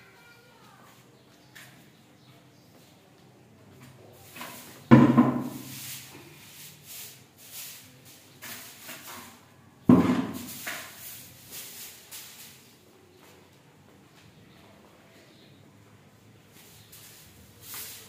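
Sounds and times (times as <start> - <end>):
broom sweeping stone floor: 3.8 - 12.9, 16.4 - 18.0
loud knocks with ringing: 4.9 - 5.7.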